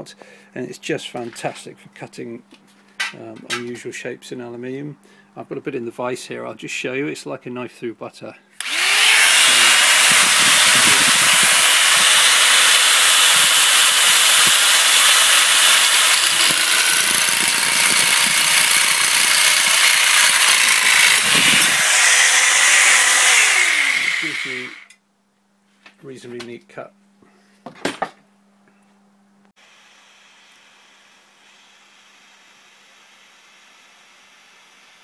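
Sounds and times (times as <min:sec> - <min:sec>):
power nibbler cutting metal sheet: 0:08.6 - 0:24.9.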